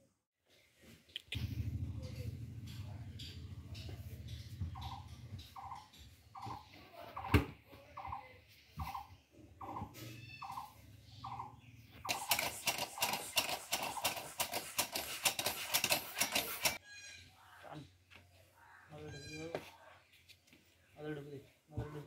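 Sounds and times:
hen clucking: 0:02.0 - 0:07.4, 0:08.0 - 0:14.3
rapid rasping and scraping: 0:12.0 - 0:16.8.

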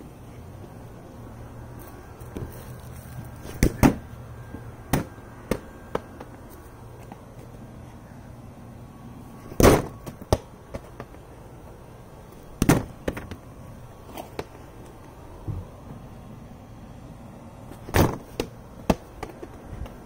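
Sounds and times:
ball bouncing knocks: 0:04.9 - 0:06.4, 0:17.9 - 0:20.0.

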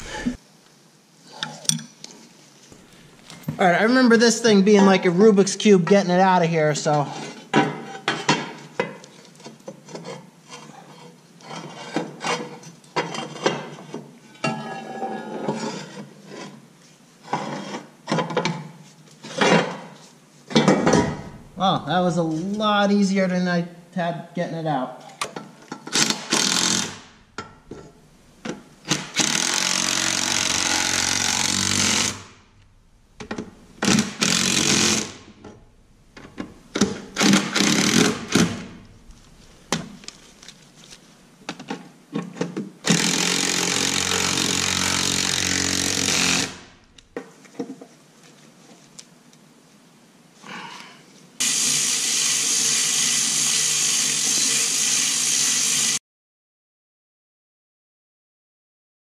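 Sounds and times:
metal clanks of tools: 0:01.4 - 0:02.1, 0:12.3 - 0:15.6
impact wrench running: 0:25.9 - 0:40.5, 0:42.9 - 0:46.8, 0:51.4 - 0:56.0.

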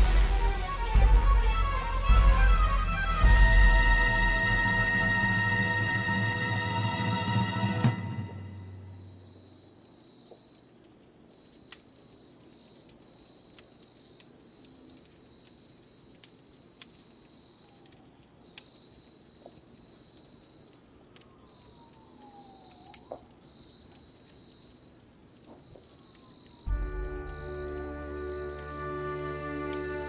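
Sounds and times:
faint falling whistle: 0:00.0 - 0:09.6, 0:25.8 - 0:30.0
pulsing insect trill: 0:00.0 - 0:10.7, 0:20.0 - 0:30.0
insects trilling: 0:03.0 - 0:30.0
faint sharp clicks: 0:10.5 - 0:18.8.

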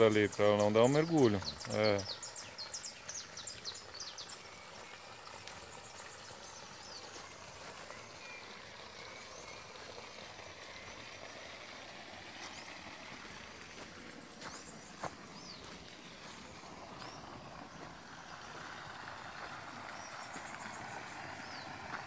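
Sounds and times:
small bird chirps: 0:00.0 - 0:10.8
steady outdoor hiss: 0:00.0 - 0:22.0.

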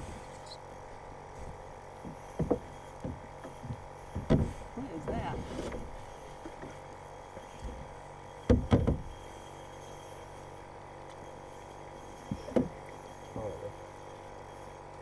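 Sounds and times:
dull knocks: 0:02.0 - 0:05.9, 0:08.5 - 0:09.1.

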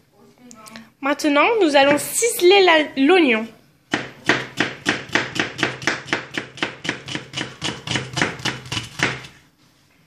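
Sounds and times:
knife chopping on cutting board: 0:03.9 - 0:09.4.

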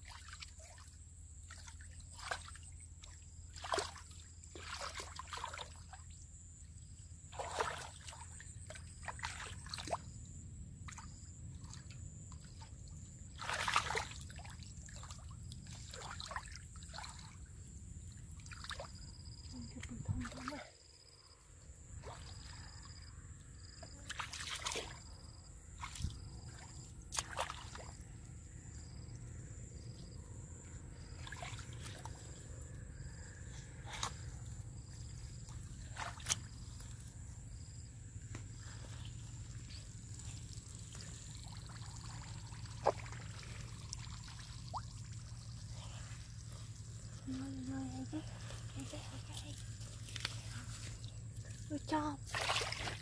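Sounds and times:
hands splashing in muddy water: 0:01.5 - 0:06.0, 0:07.3 - 0:10.1, 0:13.3 - 0:17.4, 0:24.0 - 0:28.1, 0:31.0 - 0:32.4, 0:33.0 - 0:37.0, 0:37.6 - 0:51.6, 0:52.2 - 0:53.0.

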